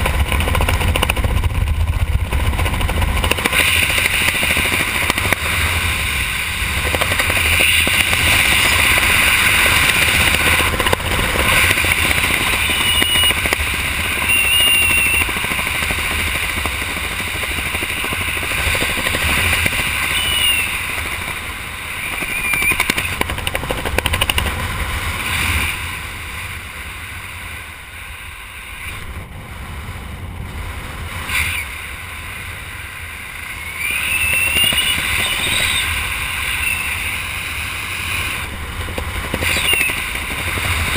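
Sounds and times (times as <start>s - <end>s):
wind rushing over microphone: 0.0s - 40.9s
short high squeaks: 12.7s - 13.4s, 14.2s - 15.3s, 20.1s - 20.8s, 33.7s - 37.1s, 39.4s - 40.0s.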